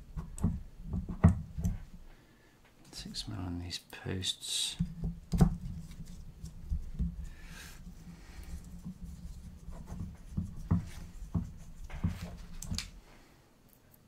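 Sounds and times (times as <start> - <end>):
rubbing and handling noise: 4.7 - 13.3
light clicks and taps: 9.9 - 13.0.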